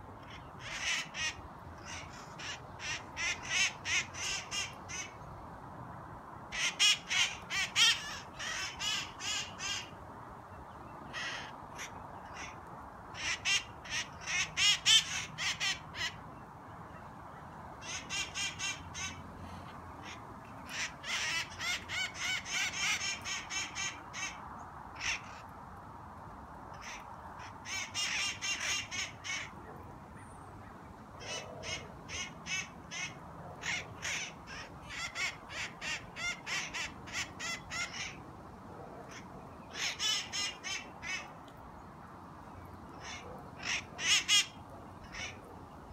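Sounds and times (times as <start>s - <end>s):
parrots squawking: 20.0s - 24.4s.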